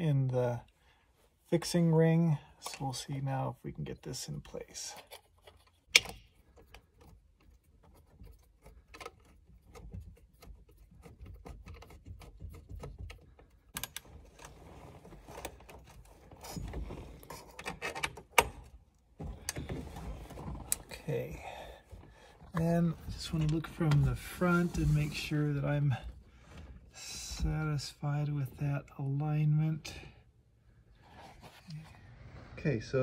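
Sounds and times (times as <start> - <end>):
rubbing and wire rustle: 4.5 - 27.4.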